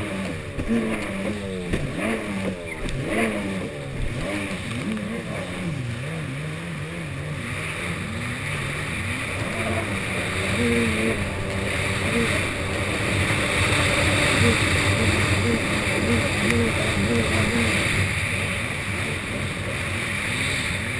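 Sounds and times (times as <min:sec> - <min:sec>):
jet ski engine revving: 0:00.0 - 0:20.9.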